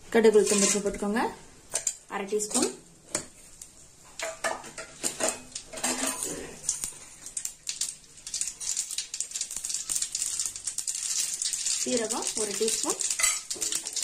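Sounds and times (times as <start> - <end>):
seeds spluttering in hot oil: 4.2 - 14.0.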